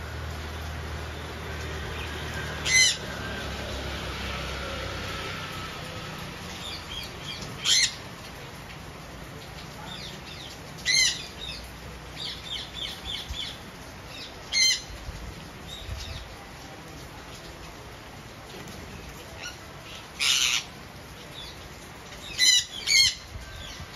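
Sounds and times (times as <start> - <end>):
parakeets chirping: 2.6 - 3.0, 6.6 - 8.0, 19.4 - 20.7, 22.3 - 23.2
parakeets screeching: 2.6 - 3.0, 7.6 - 8.0, 20.2 - 20.7, 22.3 - 23.2.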